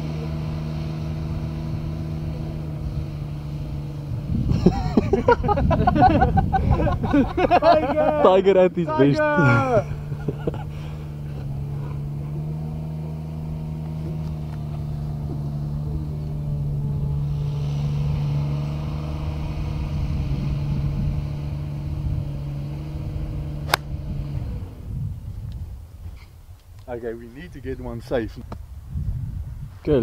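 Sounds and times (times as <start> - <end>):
golf cart engine humming: 0.0 - 27.1
sharp click: 23.7 - 23.9.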